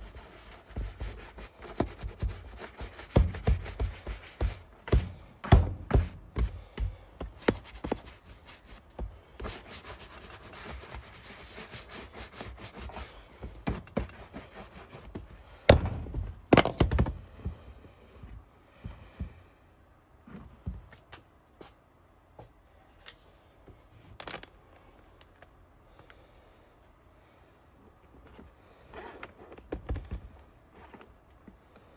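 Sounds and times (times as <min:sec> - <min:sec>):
bristle brush scrubbing leather boot: 0:00.0 - 0:05.3, 0:05.9 - 0:15.3.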